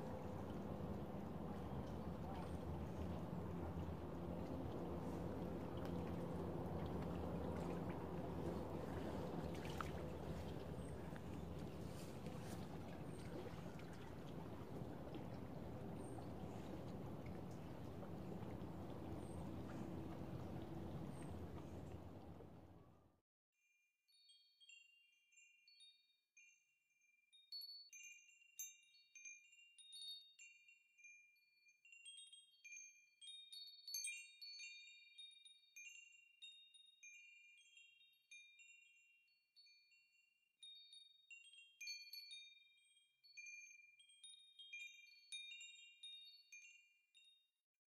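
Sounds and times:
water lapping: 0:00.0 - 0:22.8
wind: 0:00.0 - 0:23.1, 0:27.3 - 0:47.6
faint chime tones: 0:23.6 - 0:47.5.

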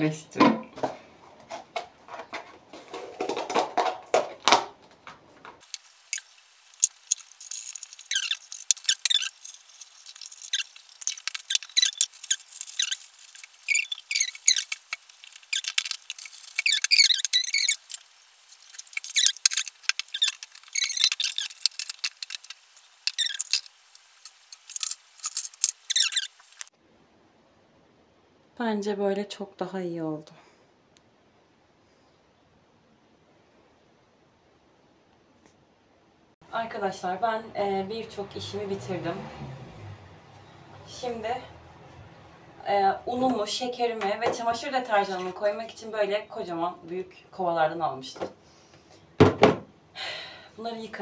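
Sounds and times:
plastic bag crinkling: 0:05.6 - 0:26.7.

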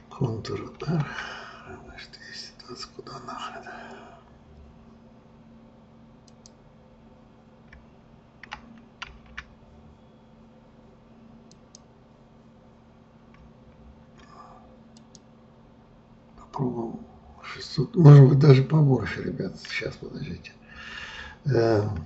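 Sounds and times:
keyboard and mouse clicks: 0:06.2 - 0:06.6, 0:08.4 - 0:09.5, 0:14.9 - 0:15.3.

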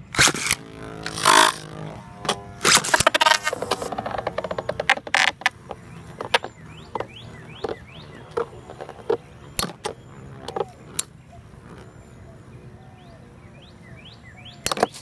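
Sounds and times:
faint whir: 0:00.0 - 0:15.0
spinning tops clacking: 0:00.1 - 0:06.5.

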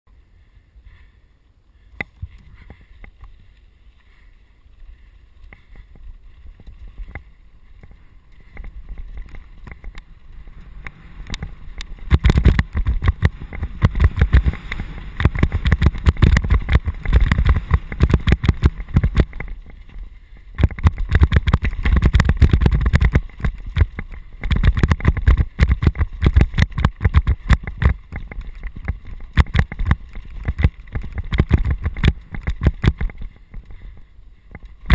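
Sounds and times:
low wind rumble: 0:00.1 - 0:34.9
bike rattling and clattering: 0:02.0 - 0:34.9
bike tyres crunching on stones: 0:02.1 - 0:34.9.

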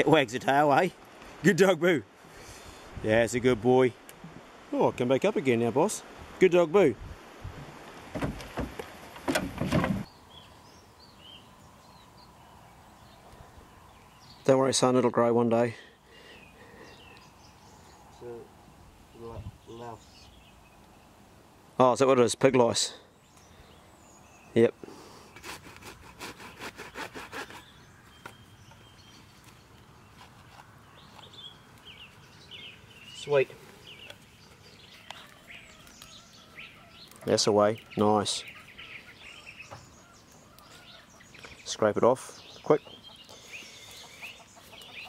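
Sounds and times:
blade sawing back and forth: 0:25.4 - 0:27.7.

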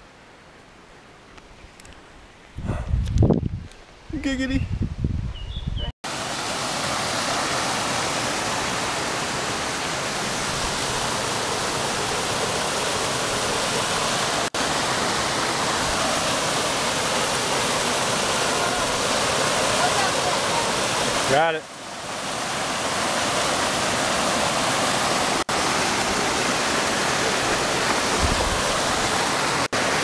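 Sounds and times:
stream rushing over rocks: 0:06.0 - 0:30.0.

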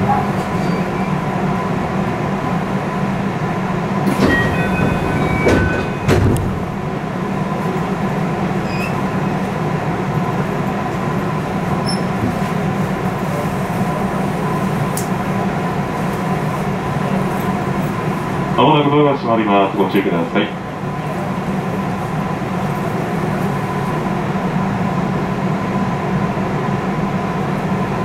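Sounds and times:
train running hum and rumble: 0:00.0 - 0:28.0
low clunk: 0:04.1 - 0:06.6.

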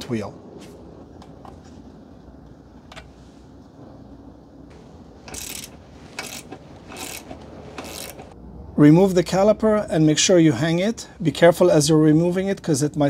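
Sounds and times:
hand ratchet clicking: 0:05.2 - 0:08.4.

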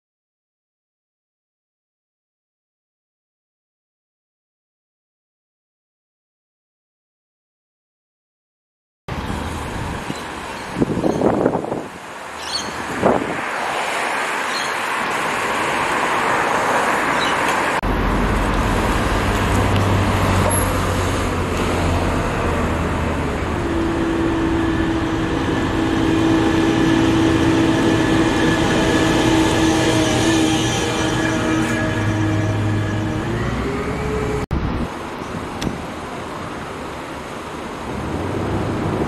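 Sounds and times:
cars passing and idling: 0:09.1 - 0:30.8, 0:31.4 - 0:39.0
steady engine hum: 0:17.7 - 0:34.8.

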